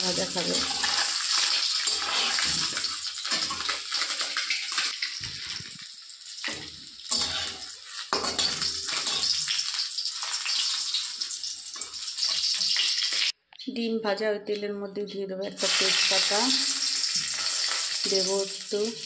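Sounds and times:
metal spatula scraping pan: 0.0 - 5.7, 6.4 - 13.2, 17.0 - 18.1
eggs sizzling in hot oil: 0.0 - 13.4, 15.6 - 19.0.

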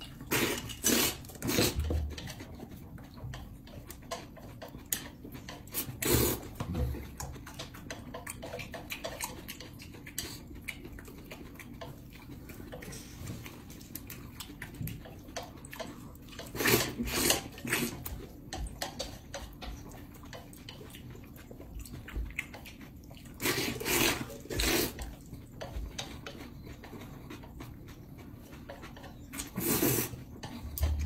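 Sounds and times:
noodles being slurped: 0.2 - 1.9, 5.5 - 6.6, 16.4 - 18.2, 22.8 - 25.4, 26.2 - 31.0.

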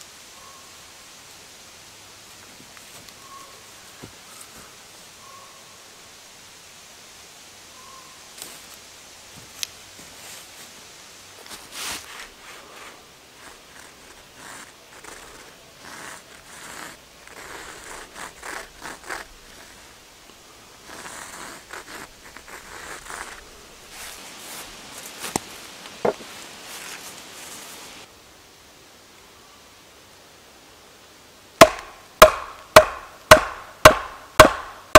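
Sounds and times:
pencil scratching on log end: 13.4 - 19.9, 20.8 - 23.4.

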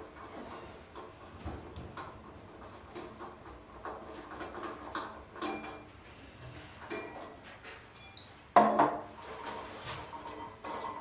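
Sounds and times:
faint bell ring: 8.0 - 8.4.

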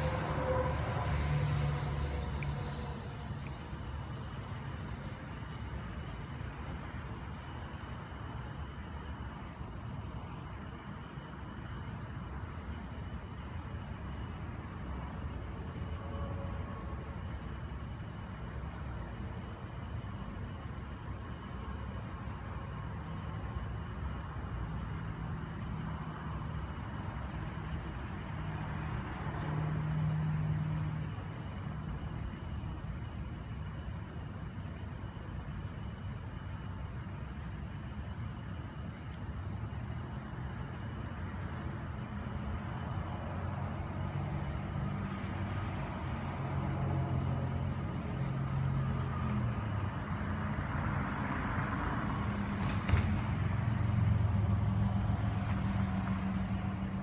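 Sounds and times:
crickets chirping: 0.0 - 57.0.

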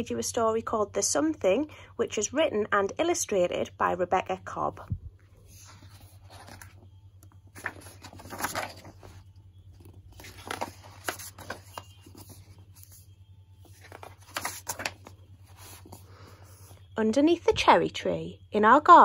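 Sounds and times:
steady low hum: 0.0 - 19.0
book pages turning: 5.4 - 16.8.

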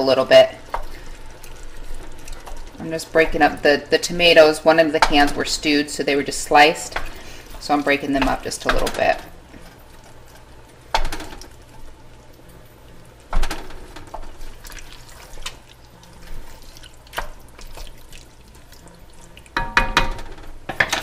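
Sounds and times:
wet squelching and sloshing: 0.6 - 3.5, 14.2 - 19.6
spoon knocking against pan: 19.6 - 21.0.

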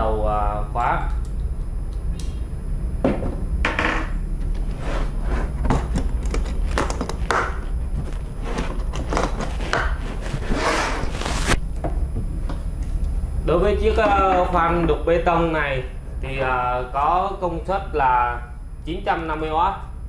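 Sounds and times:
low hum: 0.0 - 20.0
scraping rustle: 8.0 - 11.6.

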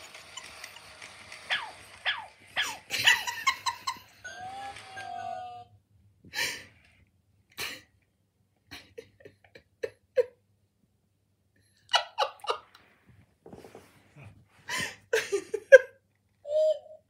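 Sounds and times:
robot dog yips: 1.4 - 3.2, 4.2 - 5.7.

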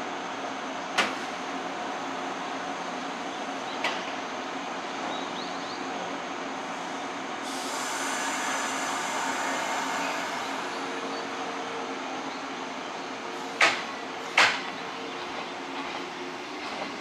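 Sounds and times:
electric train hum: 0.0 - 17.0
high hiss: 7.4 - 11.7.

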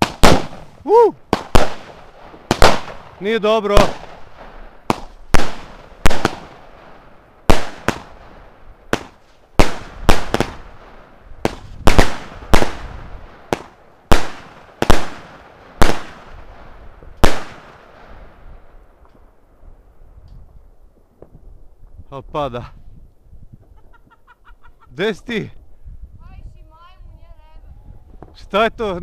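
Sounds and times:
fireworks bangs: 0.0 - 19.3.

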